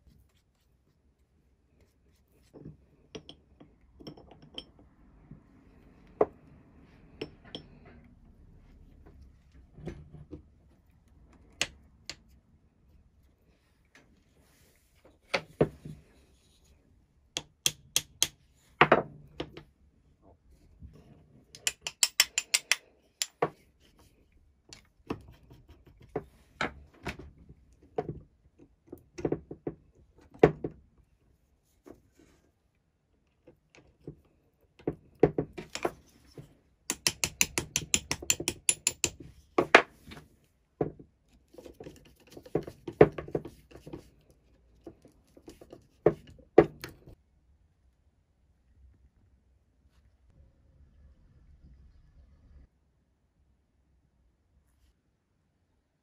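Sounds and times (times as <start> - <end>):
small hammer tapping metal pins: 21.6 - 23.4, 36.9 - 39.2.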